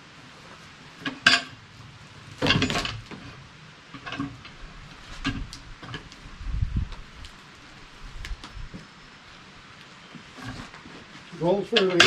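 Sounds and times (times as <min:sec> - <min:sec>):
log scraping: 0:04.0 - 0:08.6, 0:09.8 - 0:12.0.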